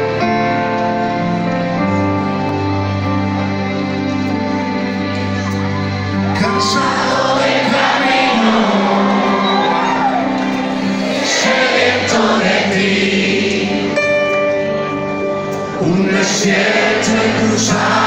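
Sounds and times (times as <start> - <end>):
band playing soft ballad: 0.0 - 18.0
audience cheering: 6.3 - 11.6
audience singing along: 6.3 - 18.0.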